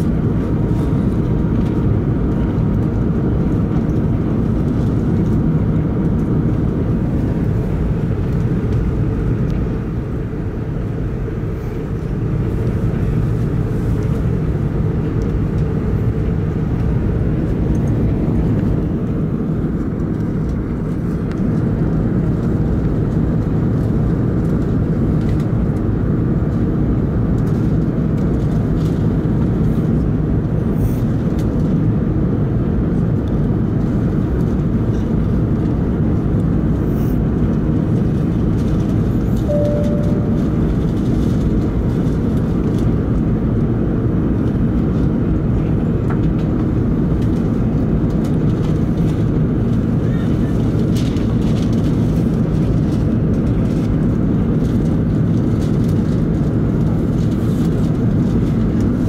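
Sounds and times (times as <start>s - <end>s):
jet engines in cabin: 0.0s - 59.0s
faint tone: 39.4s - 41.1s.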